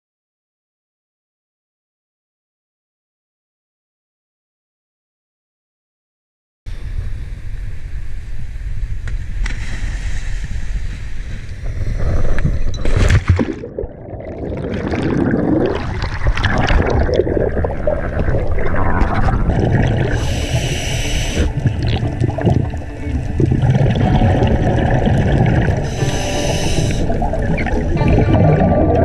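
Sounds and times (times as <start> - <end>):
wind: 6.7 - 13.6
sea hiss: 6.8 - 12.7, 17.0 - 28.0
underwater bubbles churning: 11.6 - 29.0.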